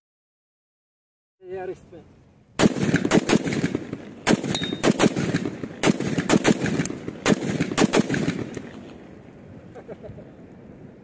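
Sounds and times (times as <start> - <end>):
rifle shots with echo: 2.6 - 8.8.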